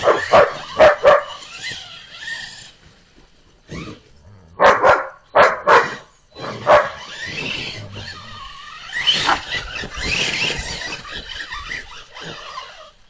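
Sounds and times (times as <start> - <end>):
dog barking: 0.0 - 1.4, 4.6 - 6.0, 6.6 - 7.0.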